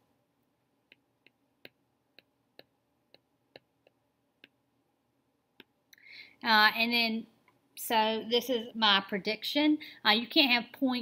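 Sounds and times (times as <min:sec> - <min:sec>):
stylus tapping tablet screen: 0:00.5 - 0:04.8, 0:05.5 - 0:05.9.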